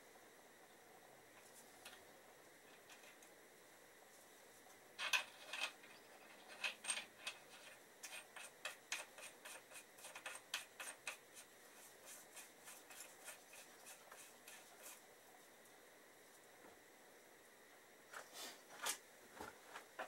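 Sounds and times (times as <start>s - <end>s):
small metal clicks and rubbing: 2.7s - 3.3s, 5.0s - 11.2s.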